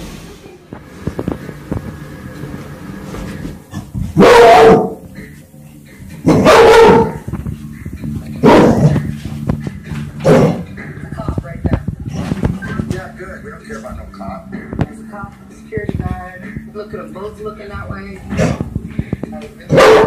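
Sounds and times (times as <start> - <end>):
dog barking: 4.2 - 5.0, 6.3 - 7.3, 8.4 - 9.0, 19.7 - 20.0.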